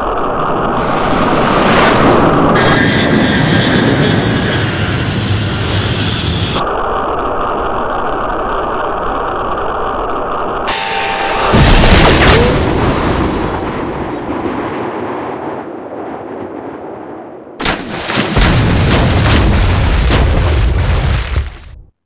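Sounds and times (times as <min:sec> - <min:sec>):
heavy low rumble: 0:00.0 - 0:17.6, 0:18.4 - 0:21.9
loud explosion blast: 0:11.5 - 0:21.8.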